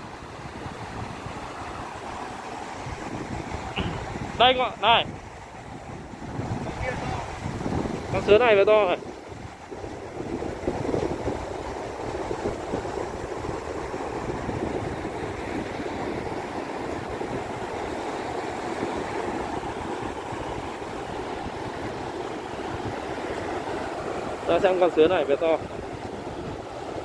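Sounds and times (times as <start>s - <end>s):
sea surf breaking on shore: 0.0s - 27.0s
wind rumbling on microphone: 0.0s - 27.0s.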